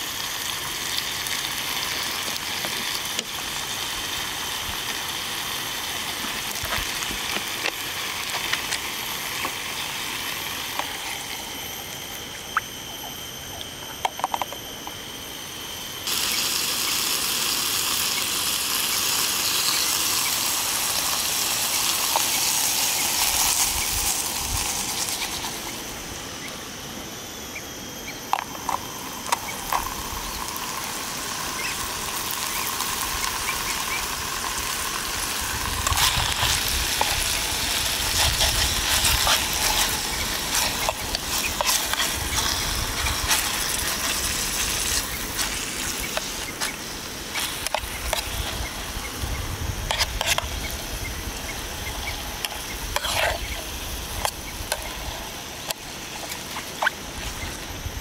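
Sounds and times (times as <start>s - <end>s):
meat sizzling in broth: 0.0s - 11.5s, 16.0s - 25.9s, 28.6s - 49.3s
spoon scraping a pot: 35.8s - 44.3s, 52.4s - 54.9s.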